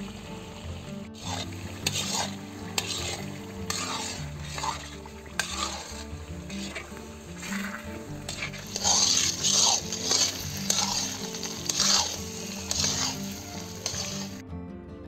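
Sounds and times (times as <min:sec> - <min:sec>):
metal scraping against pan: 0:01.1 - 0:14.4
spatula stirring thick mixture: 0:01.1 - 0:14.4.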